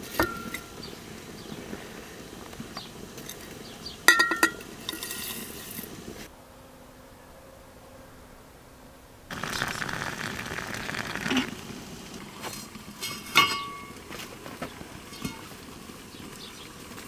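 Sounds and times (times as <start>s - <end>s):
fire burning: 0.0s - 6.3s, 9.3s - 17.0s.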